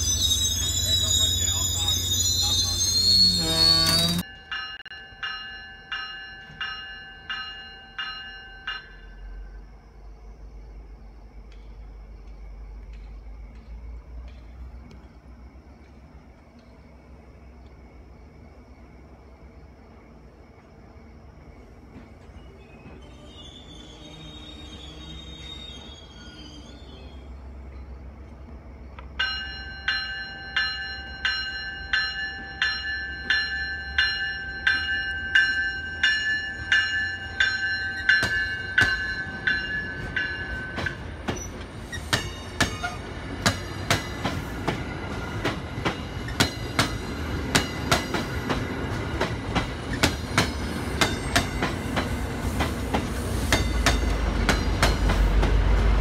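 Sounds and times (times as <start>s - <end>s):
diesel locomotive rumble: 0.0s - 4.3s, 35.7s - 56.0s
train bell ringing: 0.0s - 9.7s, 29.2s - 42.9s
train wheels clicking over rail joints: 1.6s - 9.2s, 11.3s - 17.8s, 27.7s - 56.0s.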